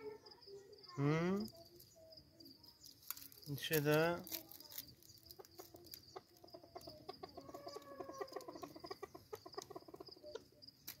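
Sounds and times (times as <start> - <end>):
high insect trill: 0.0 - 11.0
partridge clucking: 3.0 - 11.0.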